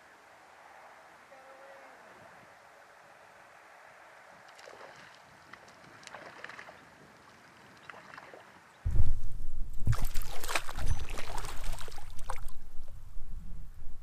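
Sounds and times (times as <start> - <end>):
faint stream: 0.0 - 13.8
wind rumble on microphone: 8.8 - 14.0
trout thrashing and splashing: 9.8 - 12.6.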